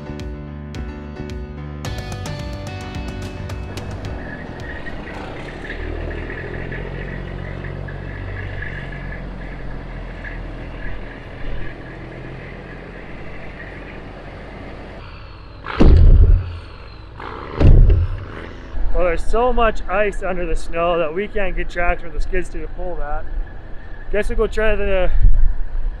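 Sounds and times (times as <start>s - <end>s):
heavy diesel engine running: 2.0s - 18.9s.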